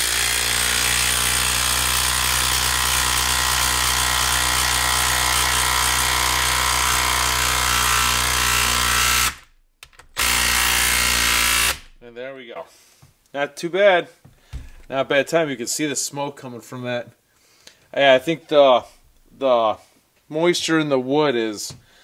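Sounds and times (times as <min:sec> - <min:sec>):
impact driver hammering: 0:00.0 - 0:12.0, 0:14.4 - 0:14.9.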